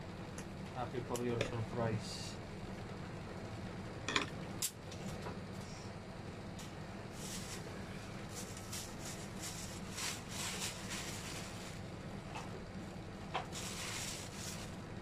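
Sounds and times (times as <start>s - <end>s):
steady low hum: 0.0s - 15.0s
wrapping material rustling: 8.2s - 11.9s, 13.5s - 15.0s.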